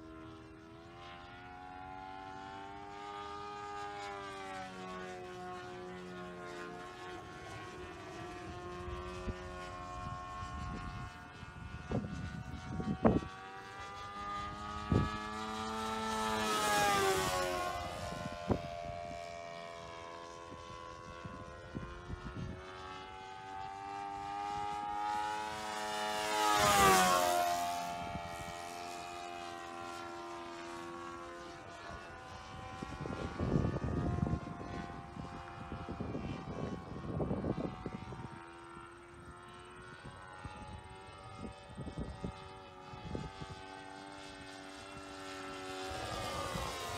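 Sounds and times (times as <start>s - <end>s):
model airplane engine droning: 0.0s - 46.9s.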